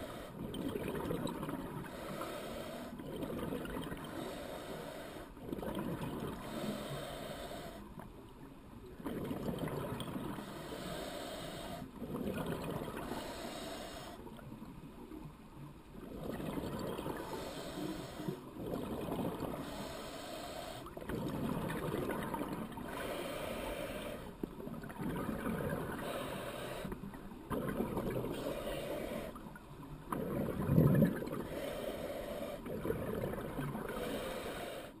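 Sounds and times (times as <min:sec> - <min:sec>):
muffled bubbling bursts: 0:00.0 - 0:01.8, 0:05.4 - 0:06.5, 0:09.0 - 0:10.5, 0:12.0 - 0:13.2, 0:16.0 - 0:17.6, 0:18.4 - 0:19.8, 0:21.0 - 0:23.0, 0:24.5 - 0:26.2, 0:27.1 - 0:29.2, 0:30.0 - 0:31.7, 0:32.6 - 0:34.2
scuba regulator breathing underwater: 0:00.0 - 0:07.9, 0:10.1 - 0:14.3, 0:16.2 - 0:24.4, 0:25.3 - 0:29.4, 0:30.2 - 0:35.0.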